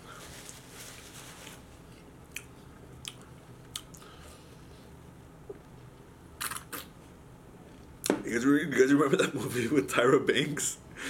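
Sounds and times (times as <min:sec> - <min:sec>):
man chewing: 0:02.0 - 0:04.4
soft mouth clicks: 0:02.3 - 0:04.1.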